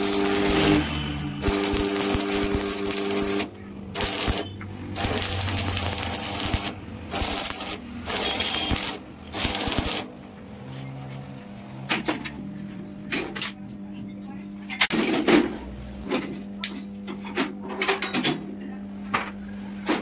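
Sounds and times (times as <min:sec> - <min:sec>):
welding arc crackling and sizzling: 0:00.0 - 0:10.6.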